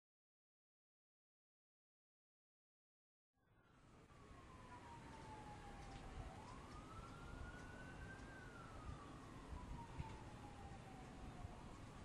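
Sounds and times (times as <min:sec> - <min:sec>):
faint siren wailing: 0:03.4 - 0:12.0.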